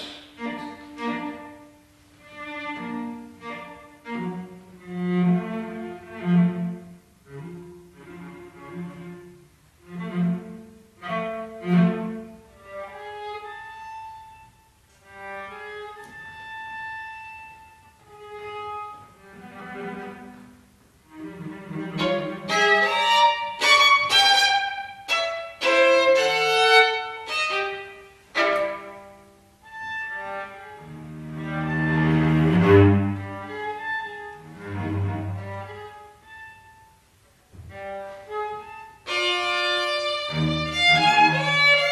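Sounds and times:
string trio playing: 0.0s - 41.9s.

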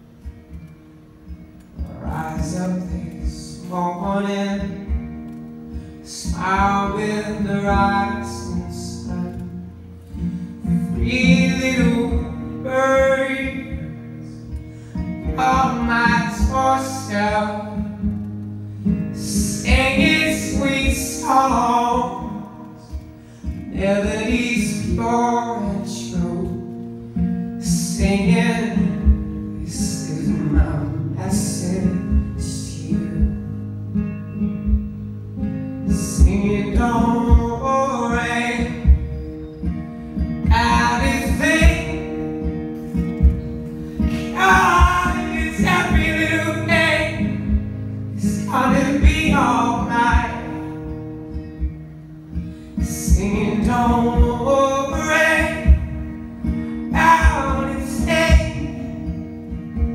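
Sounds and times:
strummed acoustic guitar: 0.0s - 59.9s
man singing: 1.8s - 5.1s, 6.0s - 9.6s, 10.6s - 18.1s, 19.1s - 26.7s, 27.6s - 33.6s, 35.8s - 39.1s, 40.4s - 42.6s, 44.0s - 51.0s, 52.8s - 59.2s.

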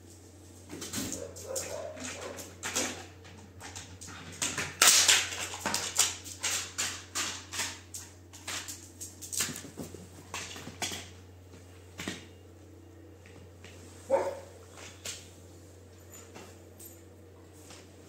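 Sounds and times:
dog claws clicking on stone floor: 0.8s - 11.3s.

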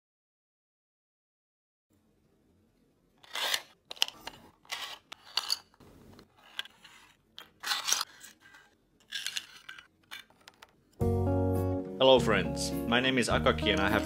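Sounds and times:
plastic pieces scraping and clicking: 3.2s - 11.0s.

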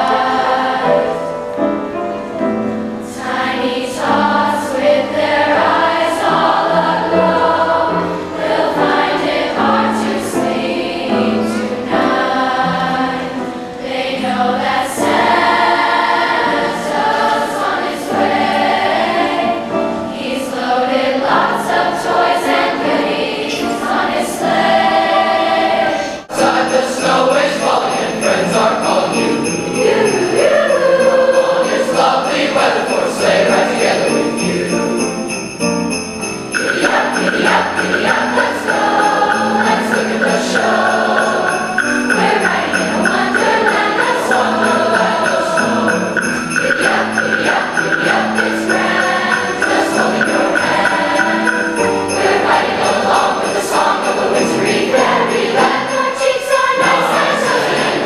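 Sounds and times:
choir singing: 0.0s - 58.0s
sleigh bells ringing: 26.3s - 58.0s.

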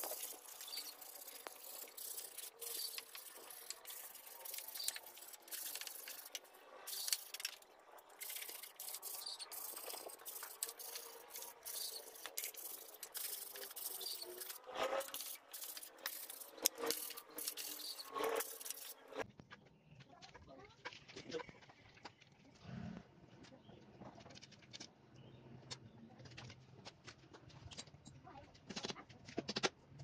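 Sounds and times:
sandpaper rubbing on wood: 0.0s - 19.2s.

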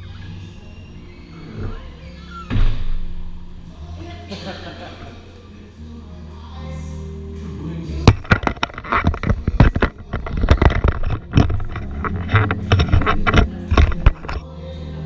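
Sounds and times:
camera handling knocks and rubbing: 8.1s - 14.4s.

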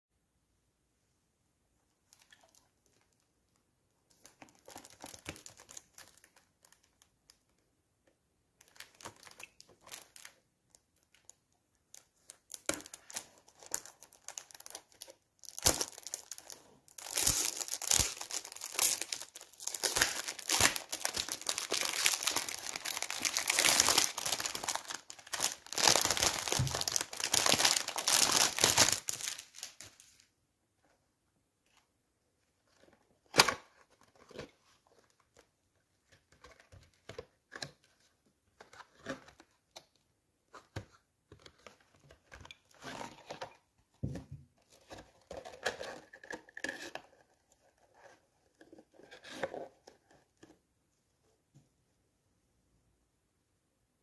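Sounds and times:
cellophane crinkling: 4.1s - 7.1s, 8.6s - 30.3s.

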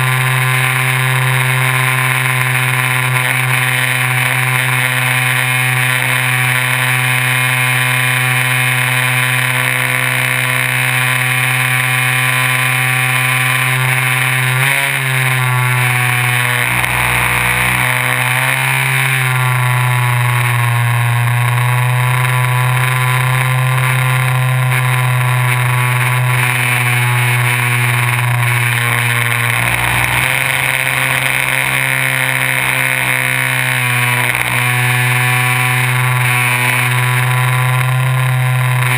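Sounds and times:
electric motor whine: 0.0s - 38.9s.

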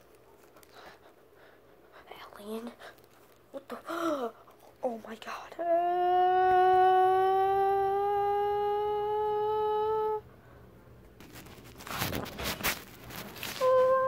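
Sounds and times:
person humming: 5.6s - 10.3s, 13.5s - 14.0s
rustling: 11.1s - 14.0s.

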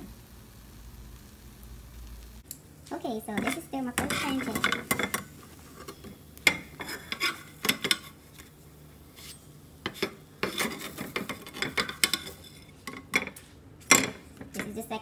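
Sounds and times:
utensil scraping a pan: 3.4s - 13.1s.

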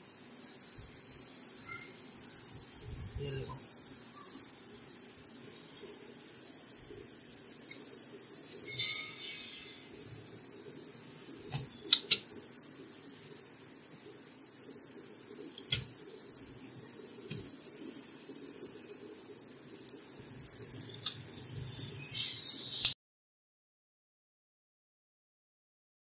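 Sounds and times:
steady hiss: 0.0s - 23.0s
graphics card clicks and taps: 15.6s - 15.9s.

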